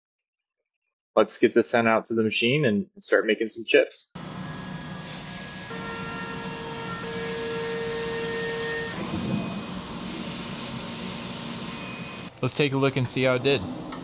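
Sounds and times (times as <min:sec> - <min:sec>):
cutting whine: 0:04.2 - 0:12.5
milling machine hiss and coolant spray: 0:09.0 - 0:12.2.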